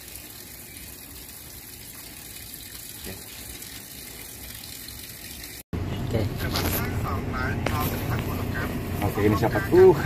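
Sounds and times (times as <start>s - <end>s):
water running: 0.0s - 5.7s.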